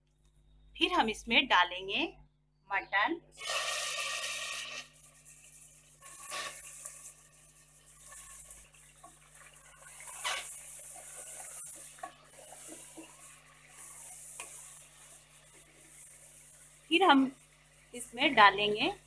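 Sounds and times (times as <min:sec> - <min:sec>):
wooden spatula scraping pot: 0:03.4 - 0:16.7
meat sizzling in hot oil: 0:03.4 - 0:19.0.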